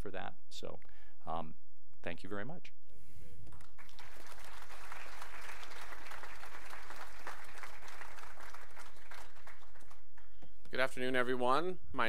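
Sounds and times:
audience applauding: 3.5 - 10.7.

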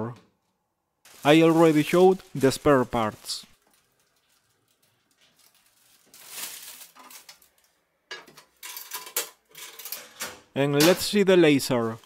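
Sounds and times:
plastic bag rustling: 1.1 - 7.8.

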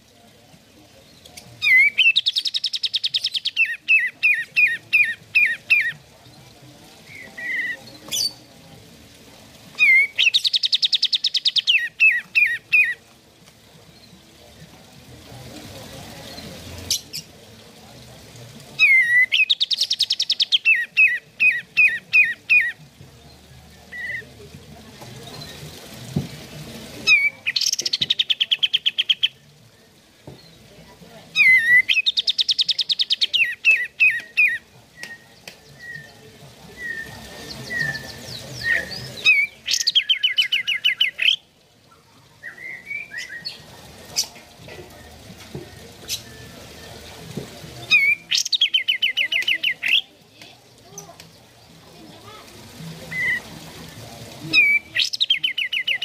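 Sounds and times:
bird singing with trills and whistles: 1.0 - 6.0, 7.0 - 8.5, 9.8 - 13.0, 18.8 - 24.3, 27.0 - 30.6, 31.4 - 41.5, 42.3 - 47.1, 47.8 - 50.1, 53.1 - 53.5, 54.5 - 56.0.

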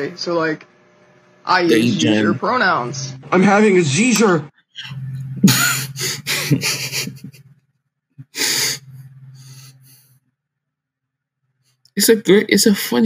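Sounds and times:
low hum: 0.0 - 13.0
man laughing breathily: 5.4 - 7.4, 8.2 - 8.9.

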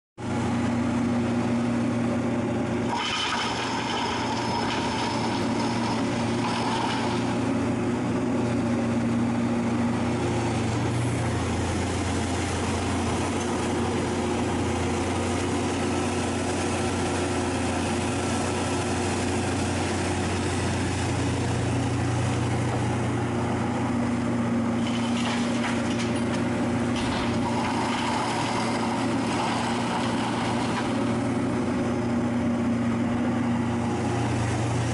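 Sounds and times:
excavator diesel engine working: 0.2 - 34.9
soil pouring into trailer: 2.8 - 7.8, 24.5 - 32.0.

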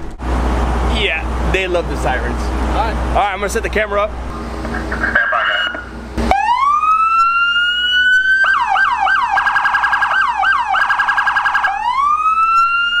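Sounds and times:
police siren wailing and yelping: 4.7 - 13.0.

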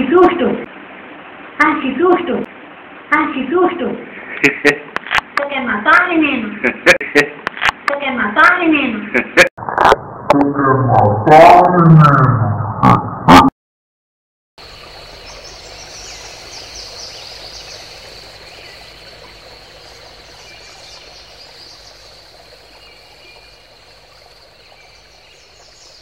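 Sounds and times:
background hiss: 0.0 - 8.2, 14.6 - 26.0
birds chirping: 14.6 - 26.0.

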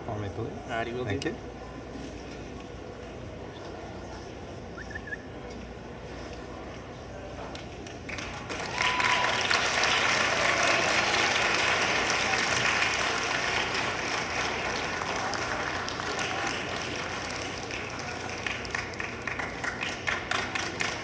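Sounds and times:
audience applauding: 8.1 - 21.0.

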